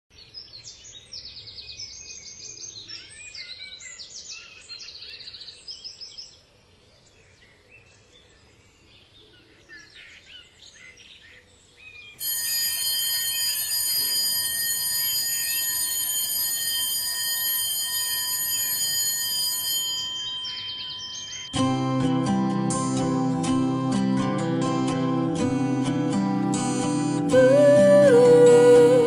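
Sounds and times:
songbirds singing: 0.1s - 12.2s, 20.2s - 21.6s
electronic alarm ringing: 12.2s - 22.5s.

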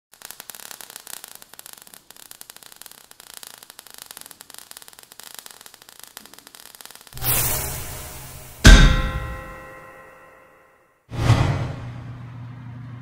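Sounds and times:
sparks crackling and hissing: 0.1s - 9.7s.

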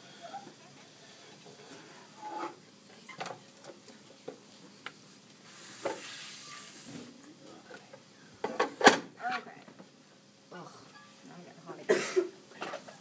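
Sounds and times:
hissing rustle: 5.0s - 7.2s.

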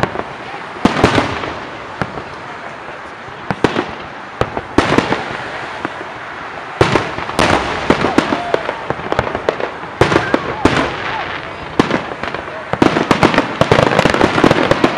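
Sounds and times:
fireworks bangs: 0.0s - 14.9s.

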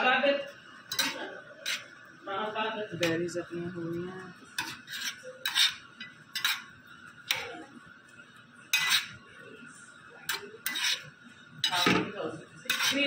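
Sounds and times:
metal spoon scraping a pan: 0.8s - 2.1s, 4.4s - 7.7s, 8.6s - 9.3s, 10.2s - 13.0s.

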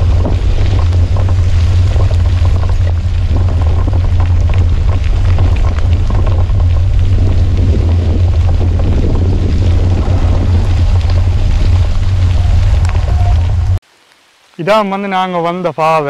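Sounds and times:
wind rumble on microphone: 0.0s - 13.8s
tyres on wet gravel: 0.0s - 15.3s
raindrops crackling: 0.0s - 15.7s.

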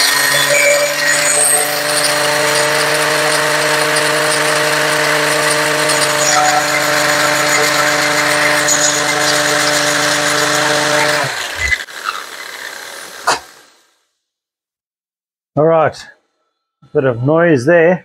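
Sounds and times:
lathe running: 0.0s - 13.8s
angle grinder grinding steel: 0.0s - 13.9s.

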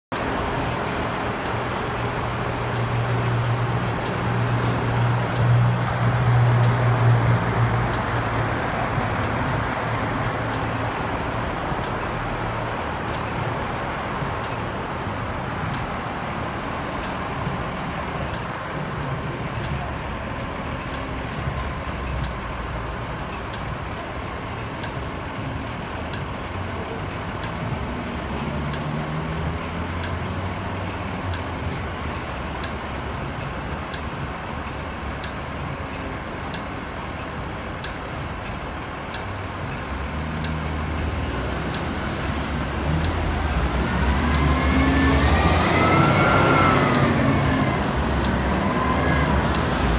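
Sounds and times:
garbage truck diesel engine: 0.1s - 49.9s
passing car traffic: 0.1s - 49.9s
faint regular ticking: 30.9s - 44.4s.

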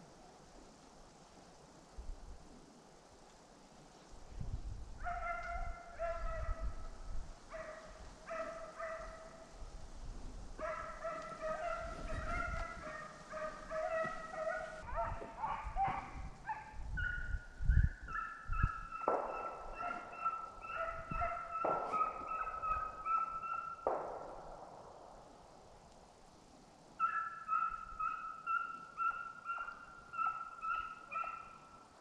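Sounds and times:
hounds baying: 5.0s - 6.8s, 7.5s - 9.5s, 10.6s - 24.0s, 27.0s - 31.8s.

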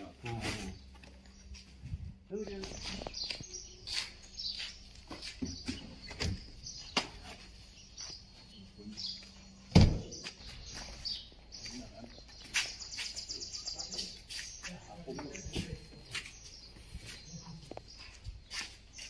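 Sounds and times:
small birds chirping: 0.0s - 19.0s
loud deep thump: 9.7s - 10.1s.

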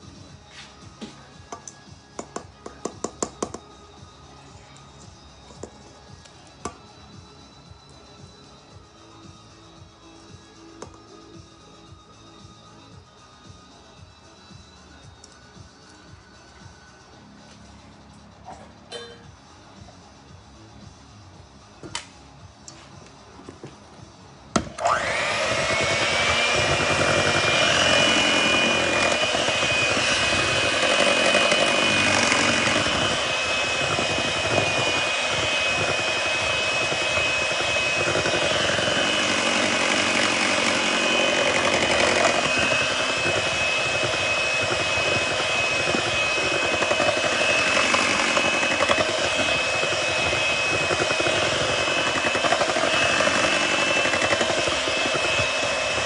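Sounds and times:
electric hand mixer whine: 24.6s - 56.0s.

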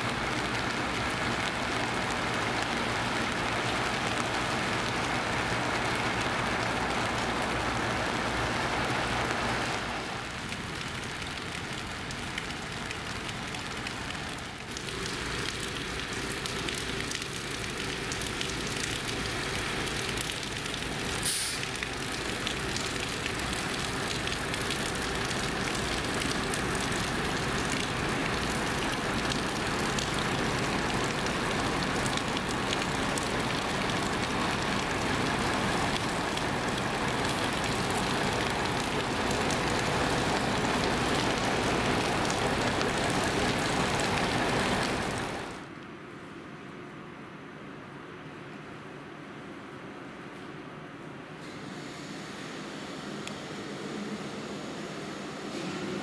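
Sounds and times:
rain on wet pavement: 0.0s - 45.8s
diesel engines idling: 14.9s - 45.7s
short sharp hiss: 21.2s - 21.7s.

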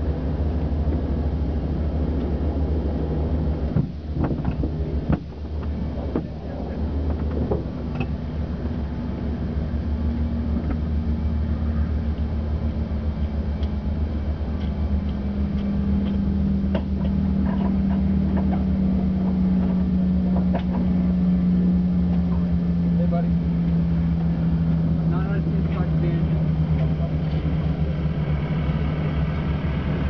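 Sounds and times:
aircraft propeller engine droning: 0.0s - 30.0s.

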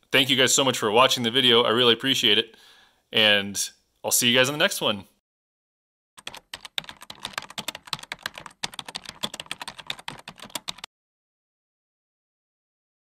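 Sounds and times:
computer keyboard typing: 6.2s - 10.9s.

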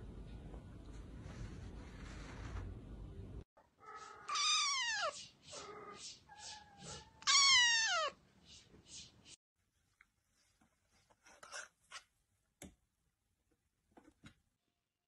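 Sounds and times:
kitten meowing: 4.1s - 5.2s, 6.4s - 8.2s.

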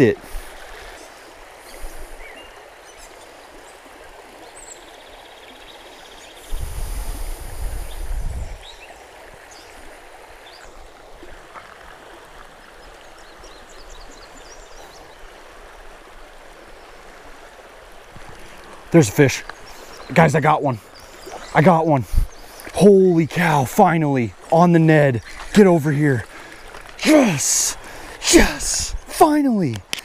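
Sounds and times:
river running over rocks: 0.0s - 30.0s
wind buffeting the microphone: 6.5s - 8.8s, 21.4s - 22.5s.

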